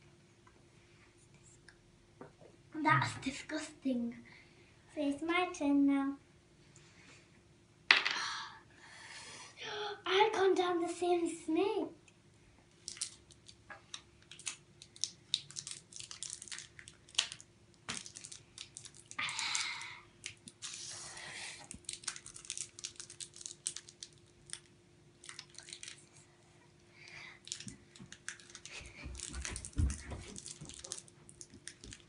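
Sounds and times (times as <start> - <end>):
wrapper rustling tears: 12.8 - 13.6, 14.3 - 21.0, 21.7 - 26.1, 27.4 - 32.0
plastic candy wrapper crinkling: 12.8 - 20.9, 21.6 - 26.2, 27.4 - 32.0.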